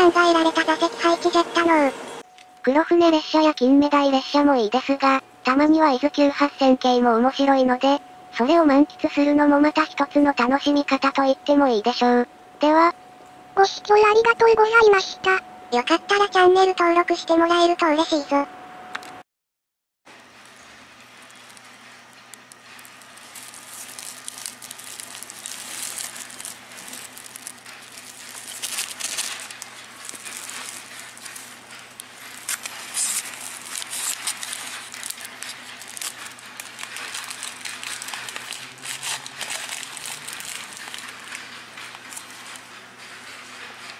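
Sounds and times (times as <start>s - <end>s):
plastic and paper wrapper crinkling: 20.4s - 43.6s.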